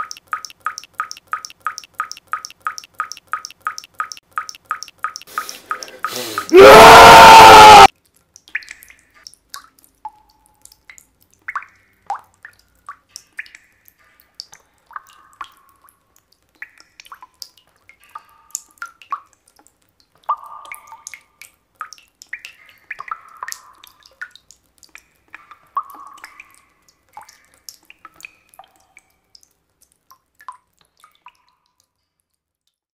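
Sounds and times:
water dripping from a tap: 0:00.0 - 0:06.5, 0:07.9 - 0:32.9
man screaming: 0:06.5 - 0:07.9.

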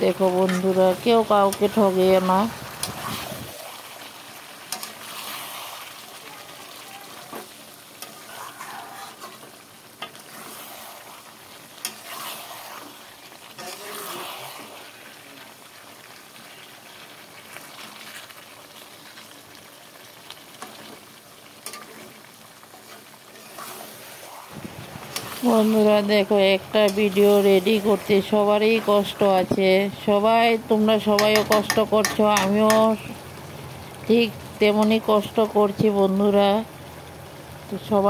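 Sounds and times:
food sizzling in oil: 0:00.0 - 0:38.0
metal spatula scraping pan: 0:08.0 - 0:11.1, 0:11.8 - 0:13.0, 0:13.6 - 0:14.8, 0:22.7 - 0:24.2.

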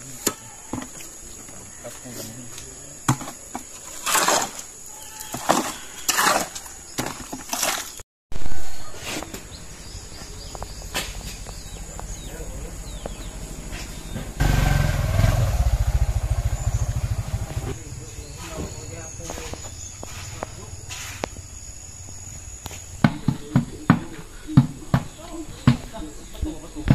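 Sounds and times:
shovel scraping wet concrete: 0:03.1 - 0:08.0.

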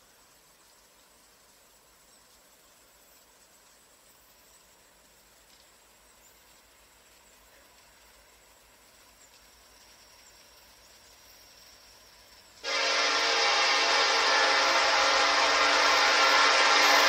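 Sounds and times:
train air horn chord: 0:12.6 - 0:17.0.

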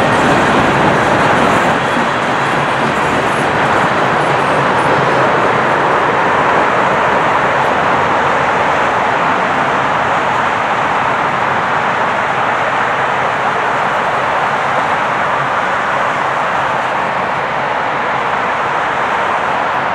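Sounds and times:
freight train rolling by: 0:00.0 - 0:19.9
highway traffic: 0:00.0 - 0:19.9.

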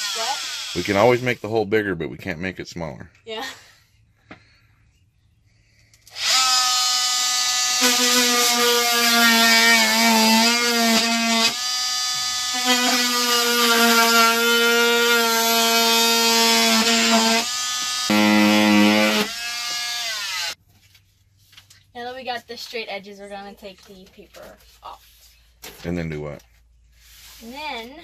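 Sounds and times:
oscillating multi-tool buzzing: 0:00.0 - 0:00.8, 0:06.1 - 0:20.6.

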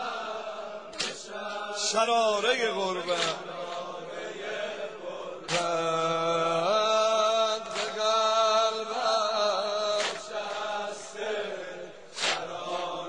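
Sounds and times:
man chanting a lament: 0:01.0 - 0:03.8, 0:05.4 - 0:11.5.

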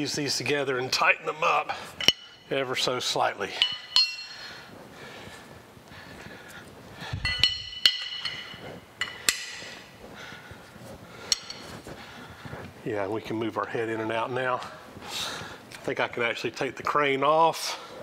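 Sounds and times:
wrench clinking on metal: 0:02.0 - 0:02.4, 0:03.5 - 0:04.5, 0:07.2 - 0:09.8, 0:11.3 - 0:11.7.

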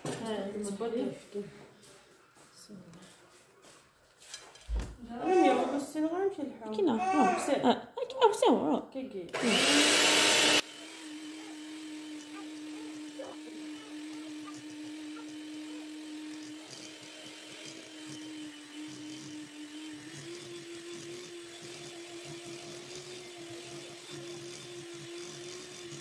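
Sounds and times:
electric hand mixer running: 0:09.3 - 0:26.0.

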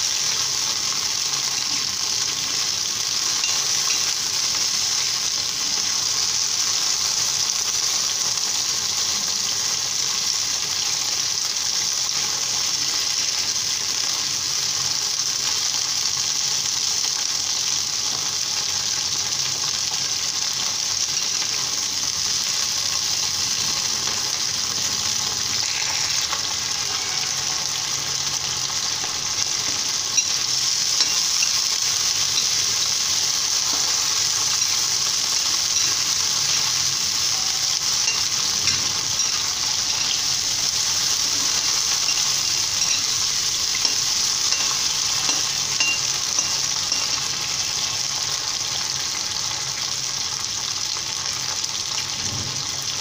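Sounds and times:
vegetables sizzling in hot oil: 0:00.0 - 0:53.0
steel ladle scraping a pan: 0:29.4 - 0:47.6.

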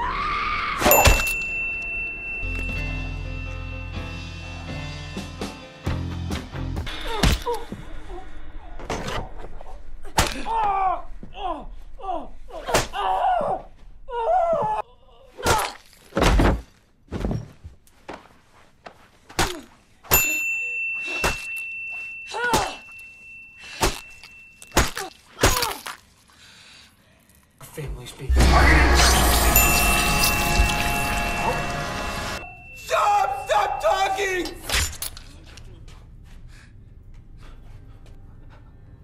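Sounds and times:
high ringing tone: 0:00.9 - 0:05.6, 0:20.1 - 0:24.8, 0:28.3 - 0:35.0.

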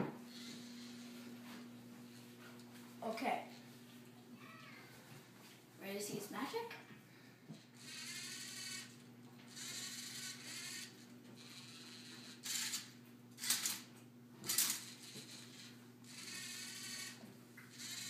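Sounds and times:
robot motors whining: 0:07.8 - 0:13.8, 0:14.5 - 0:18.0
short mechanical bursts: 0:07.8 - 0:18.0.

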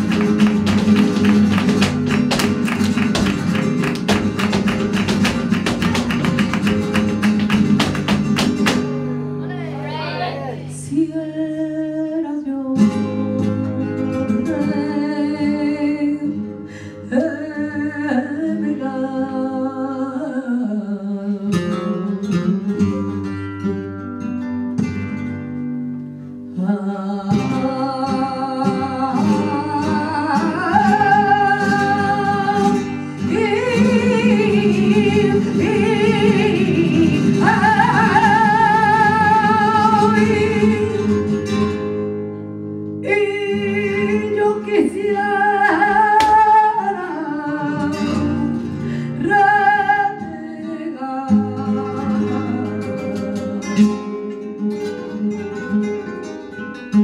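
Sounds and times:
woman singing flamenco: 0:00.0 - 0:09.4, 0:10.7 - 0:57.0
acoustic flamenco guitars: 0:00.0 - 0:57.0.

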